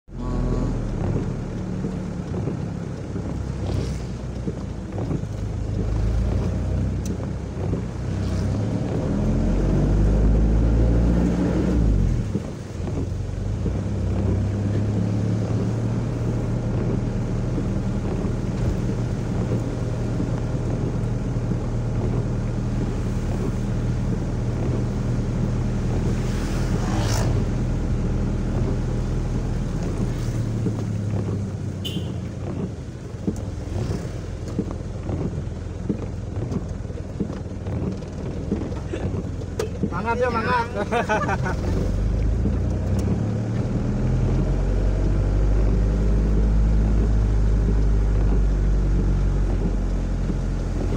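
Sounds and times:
wind buffeting microphone: 0:00.7 - 0:50.9
motorcycle engine running: 0:30.9 - 0:32.2.

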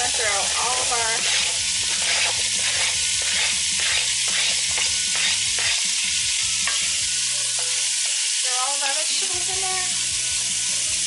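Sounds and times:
vegetables sizzling in oil: 0:00.0 - 0:11.0
wooden spoon scraping and tapping: 0:01.2 - 0:06.0, 0:06.6 - 0:08.2.

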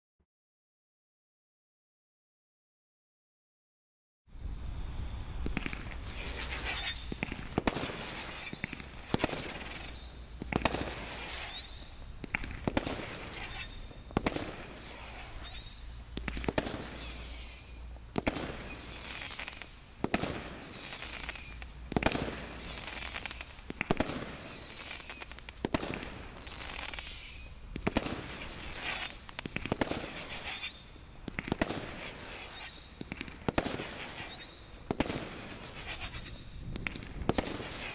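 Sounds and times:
firework crackling: 0:05.4 - 0:37.9
firework shots: 0:05.4 - 0:37.9
falling high-pitched whistle: 0:13.4 - 0:20.0, 0:20.6 - 0:25.5, 0:26.3 - 0:27.7.

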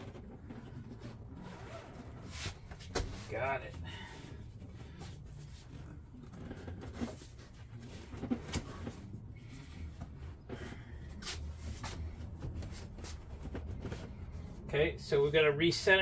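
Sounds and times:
low steady hum: 0:00.0 - 0:16.0
seat cover rustling and knocking: 0:06.4 - 0:10.7.

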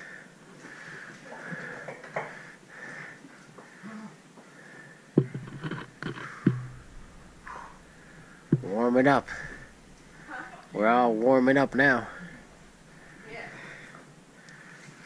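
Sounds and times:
person breathing hard: 0:00.0 - 0:05.2, 0:09.2 - 0:10.5, 0:12.0 - 0:15.0
sharp knocks: 0:05.2 - 0:10.3.

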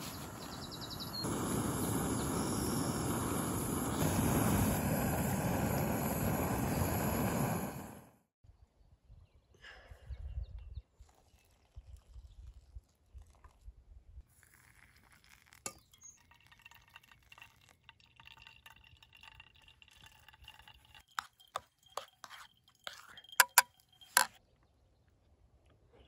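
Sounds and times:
hot water pouring: 0:01.2 - 0:08.1, 0:14.3 - 0:24.4
spoon stirring in bowl: 0:19.6 - 0:24.4
spoon clinking on bowl: 0:20.0 - 0:24.4.

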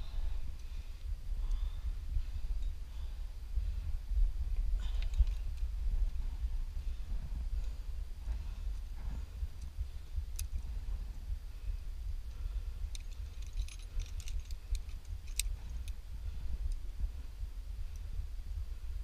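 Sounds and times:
wind rumble on microphone: 0:00.0 - 0:19.0
climbing gear clicking and jingling: 0:04.8 - 0:05.7, 0:12.8 - 0:16.0.

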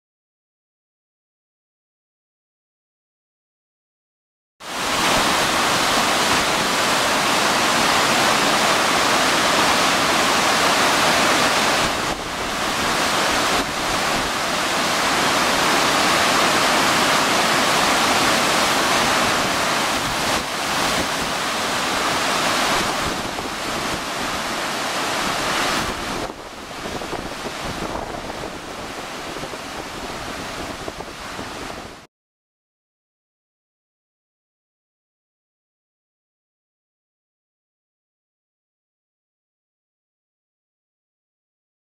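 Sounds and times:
floodwater rushing: 0:04.7 - 0:32.1.

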